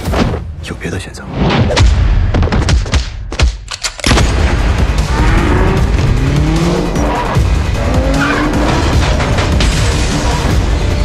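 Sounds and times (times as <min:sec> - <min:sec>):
loud dense trailer music: 0:03.9 - 0:11.0.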